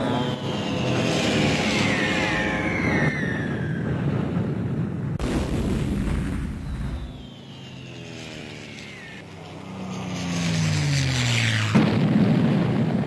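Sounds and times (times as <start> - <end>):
bomb whistling down: 0.0 - 4.1, 6.4 - 9.2
low drone sliding down: 0.0 - 5.2
explosion with rumble: 5.2 - 7.2, 11.7 - 13.0.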